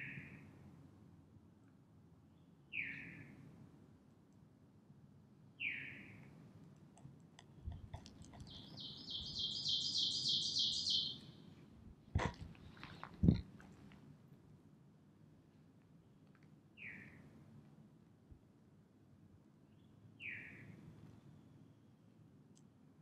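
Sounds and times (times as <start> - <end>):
rapid high bird song: 5.6 - 6.2, 8.4 - 11.4, 16.8 - 17.2, 19.8 - 20.7
bird falling call notes: 8.6 - 11.2.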